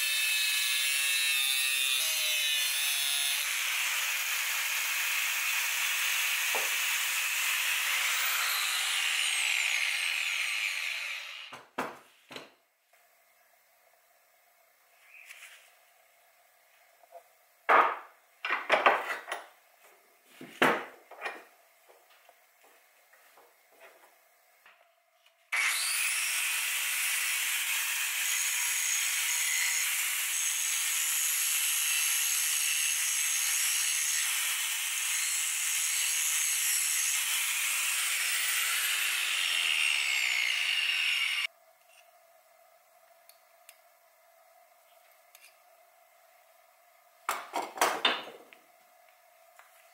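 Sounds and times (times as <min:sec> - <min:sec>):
angle grinder cutting metal: 0:00.0 - 0:11.6, 0:25.6 - 0:41.5.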